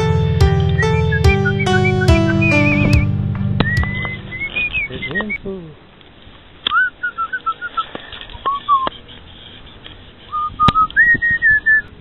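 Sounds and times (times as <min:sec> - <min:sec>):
person whistling a tune: 0:00.6 - 0:04.7.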